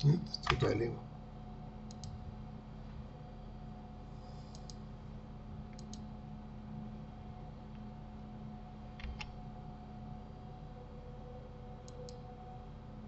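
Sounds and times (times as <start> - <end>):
faint electrical hum: 0.0 - 13.0
computer mouse clicking: 1.9 - 2.2, 4.4 - 4.8, 5.7 - 6.1, 9.0 - 9.3, 11.8 - 12.2.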